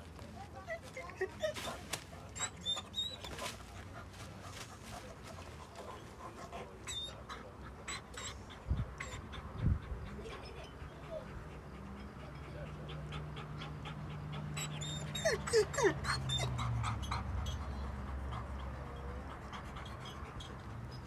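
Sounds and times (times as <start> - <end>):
dogs scuffling: 0.1 - 6.4
dog whining: 2.4 - 3.4, 7.8 - 9.3, 14.4 - 17.8.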